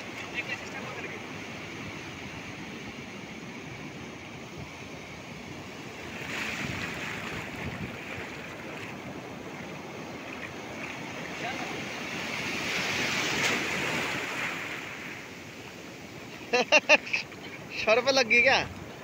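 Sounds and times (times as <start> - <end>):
surf washing up beach: 0.0 - 19.0.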